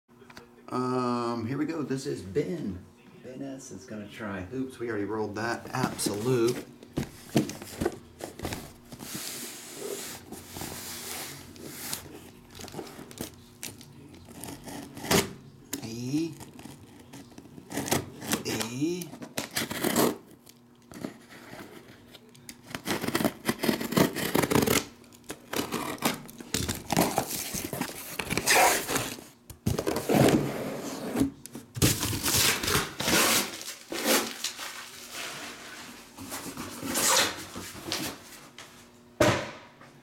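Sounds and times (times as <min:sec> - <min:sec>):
cardboard scraping: 0:05.6 - 0:13.4, 0:22.8 - 0:38.3
tape ripping off cardboard: 0:22.7 - 0:29.9, 0:31.8 - 0:34.7.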